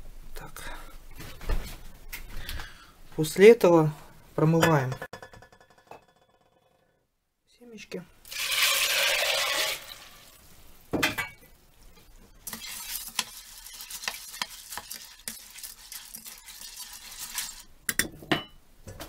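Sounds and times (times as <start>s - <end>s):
water pouring with loud hiss: 8.2s - 10.8s, 12.4s - 17.7s
hands swishing wet seeds: 12.4s - 17.7s.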